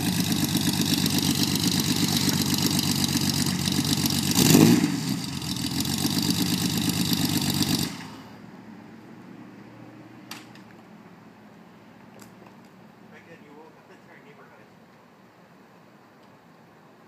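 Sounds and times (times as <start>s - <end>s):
car engine idling and revving: 0.0s - 10.5s.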